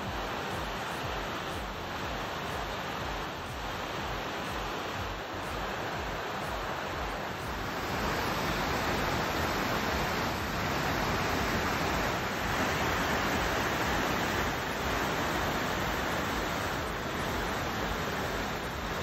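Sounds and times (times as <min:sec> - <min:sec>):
river rushing over rocks: 0:00.0 - 0:19.0.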